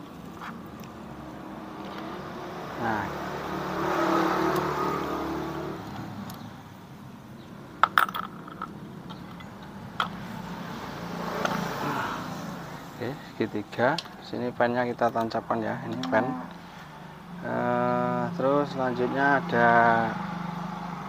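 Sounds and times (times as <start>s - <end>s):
vehicle engine passing: 0.0s - 6.6s, 10.1s - 13.3s, 15.6s - 21.0s
metallic clinks of engine parts: 7.8s - 10.2s.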